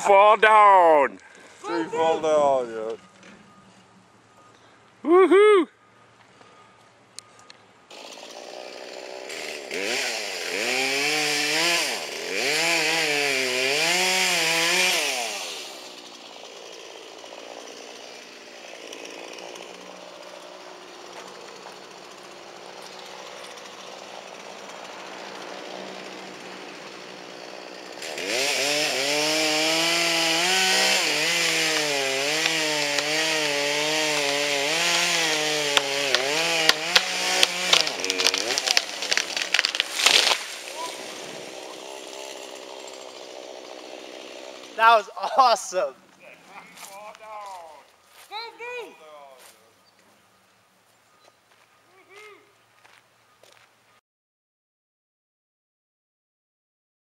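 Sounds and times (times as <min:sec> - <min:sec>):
chainsaw revving: 0:07.9 - 0:45.5.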